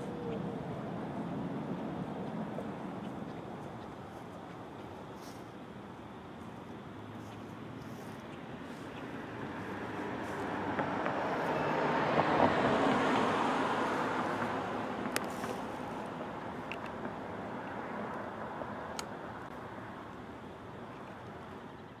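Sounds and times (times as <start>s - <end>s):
car driving past: 9.2s - 16.5s.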